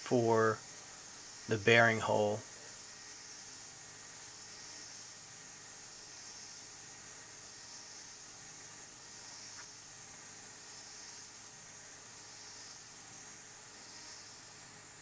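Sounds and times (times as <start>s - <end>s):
milling machine cutting hiss: 0.0s - 15.0s.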